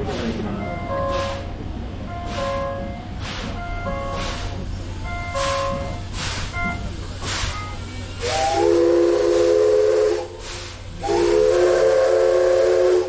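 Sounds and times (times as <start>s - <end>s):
steam hissing: 0.0s - 13.0s
steam whistle blasts: 5.3s - 5.9s, 8.2s - 13.0s.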